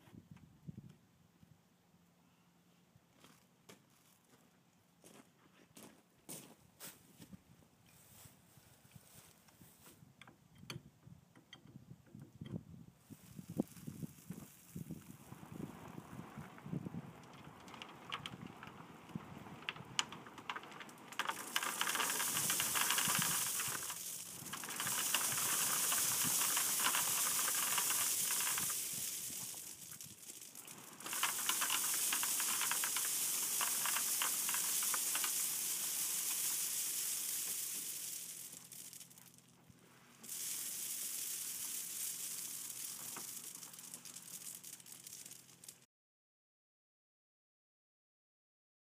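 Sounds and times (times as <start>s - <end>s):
crushed stone pouring onto a pile: 13.1s - 39.4s, 40.1s - 45.8s
quiet clicks: 17.2s - 28.7s.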